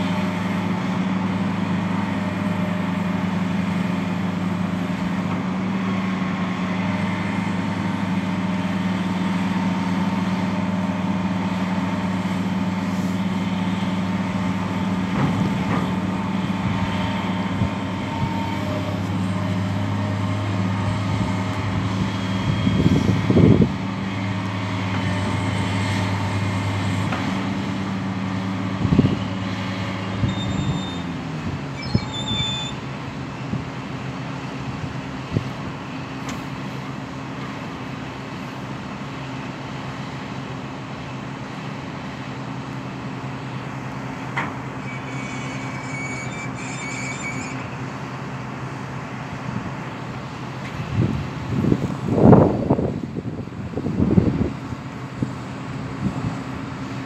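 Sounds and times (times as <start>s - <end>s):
excavator diesel engine humming: 0.0s - 57.0s
brief high squeaks: 30.2s - 32.8s, 44.8s - 47.9s.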